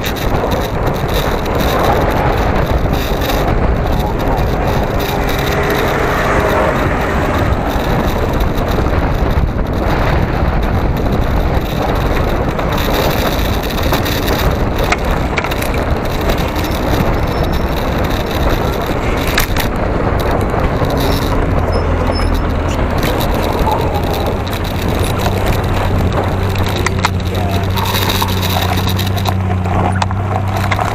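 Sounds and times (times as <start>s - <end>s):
mount rattling: 0.0s - 30.9s
wind and road noise: 0.0s - 30.9s
deep hum: 1.4s - 15.3s.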